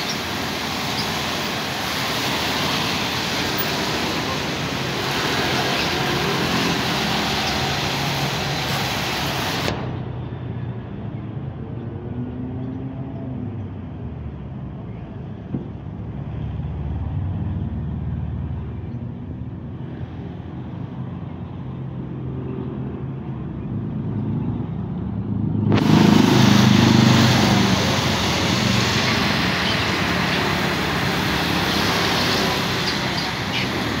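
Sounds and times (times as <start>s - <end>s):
tyres hissing on wet asphalt: 0.0s - 10.2s, 25.2s - 34.0s
car and motorbike engines passing: 0.0s - 34.0s.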